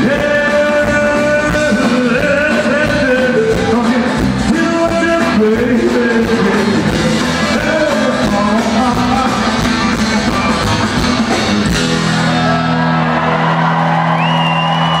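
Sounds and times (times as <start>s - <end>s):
person singing: 0.0s - 10.8s
live country rock band: 0.0s - 15.0s.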